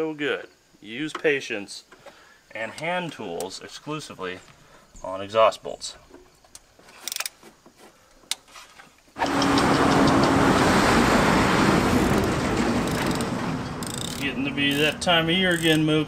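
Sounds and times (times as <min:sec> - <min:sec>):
wrench clicks: 0:07.0 - 0:07.4, 0:12.8 - 0:15.9
engine starting and running: 0:09.2 - 0:15.9.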